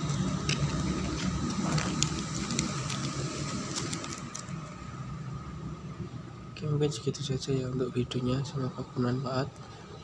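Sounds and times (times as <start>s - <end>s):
cigarette box foil crinkling: 0.0s - 4.8s.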